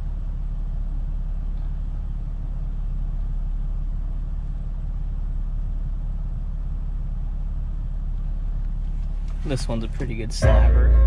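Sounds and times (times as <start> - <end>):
deep subwoofer bass: 10.0 - 11.0.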